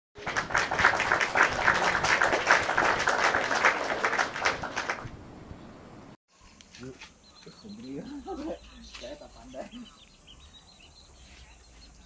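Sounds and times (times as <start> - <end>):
crowd applauding: 0.2 - 5.1.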